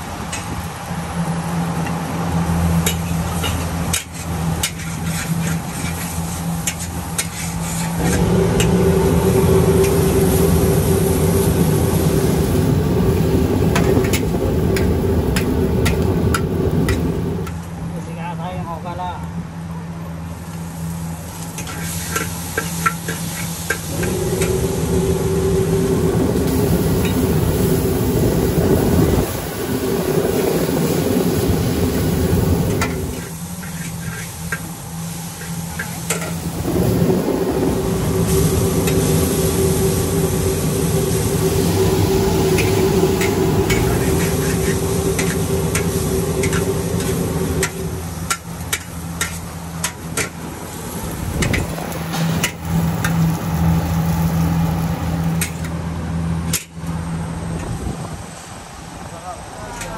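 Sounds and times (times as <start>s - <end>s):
steady loud hum: 0.0s - 59.9s
food sizzling in a wok: 2.4s - 17.6s, 20.3s - 55.7s
metal spatula scraping wok: 2.9s - 8.7s, 21.5s - 24.6s, 32.7s - 36.4s, 41.6s - 50.4s.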